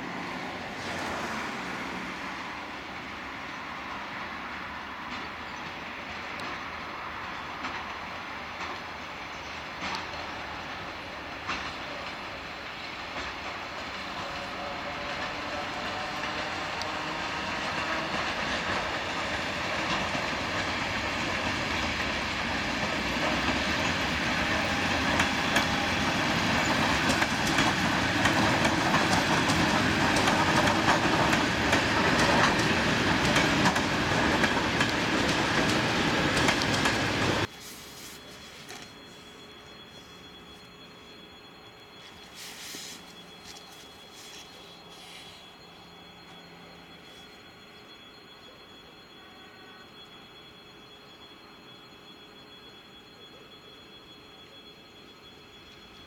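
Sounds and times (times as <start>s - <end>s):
train wheels clattering over rail joints: 5.1s - 37.5s.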